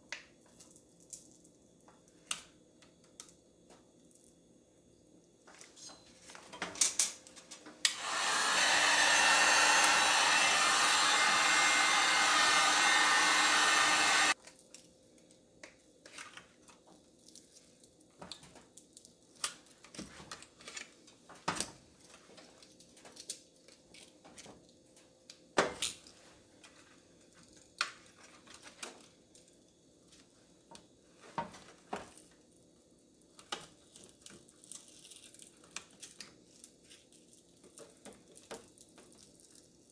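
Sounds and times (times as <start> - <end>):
heat gun blowing: 7.9 - 14.4.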